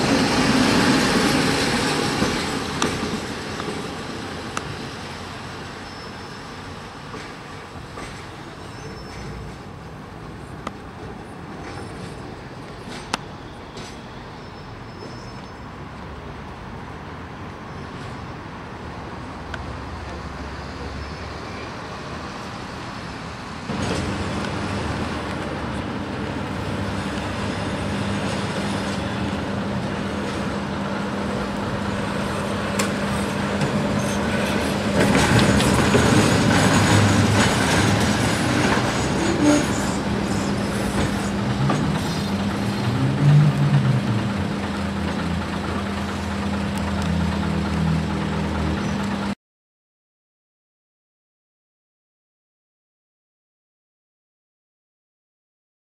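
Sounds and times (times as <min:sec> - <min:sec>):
tram wheels clattering on rail: 0:00.0 - 0:16.1, 0:23.7 - 0:49.4.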